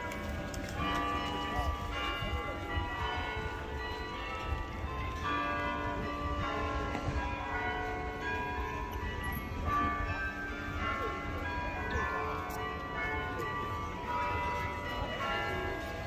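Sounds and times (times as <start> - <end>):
church bells ringing: 0.0 - 16.0.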